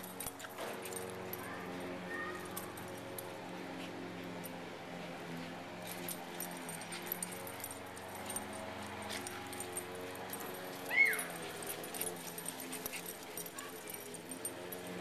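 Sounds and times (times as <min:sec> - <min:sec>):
puppy yelping: 0:10.8 - 0:11.6.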